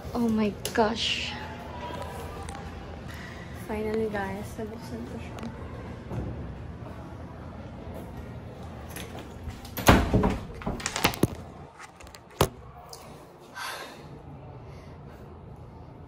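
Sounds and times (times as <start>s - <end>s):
door banging: 9.8s - 11.2s
door rattling with knocks: 9.8s - 11.3s.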